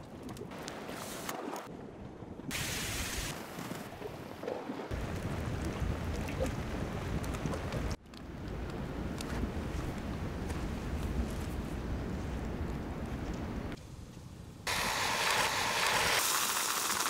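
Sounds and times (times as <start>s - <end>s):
wind rumble on microphone: 4.9s - 13.8s
fire crackling: 4.9s - 14.0s, 14.6s - 17.0s
flames hissing: 14.7s - 17.0s.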